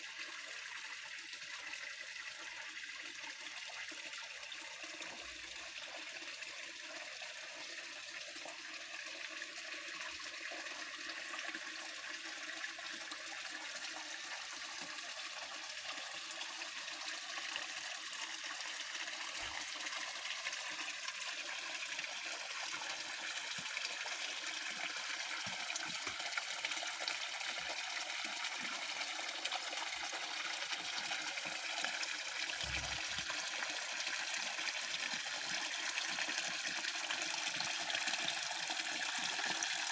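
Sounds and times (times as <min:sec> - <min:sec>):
water spilling over rocks: 0:16.1 - 0:39.9.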